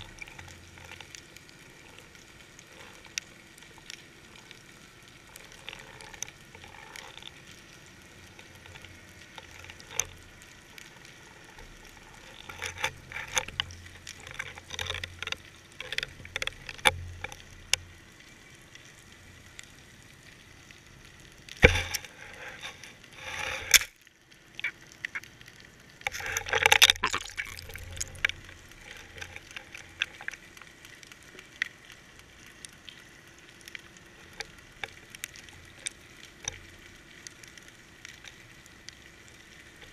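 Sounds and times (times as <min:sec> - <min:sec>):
underwater crackle of small clicks: 0:00.0 - 0:39.9.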